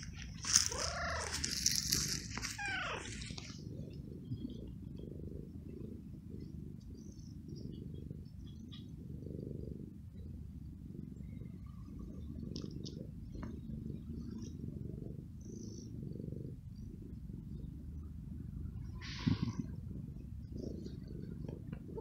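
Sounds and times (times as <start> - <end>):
cat purring: 0.0 - 22.0
cat meowing: 0.5 - 1.6, 2.3 - 3.4.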